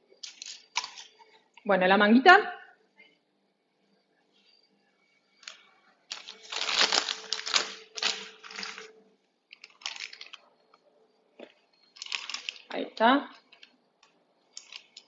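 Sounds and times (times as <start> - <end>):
plastic bag crinkling: 5.4 - 10.5, 12.0 - 12.8, 14.6 - 15.0.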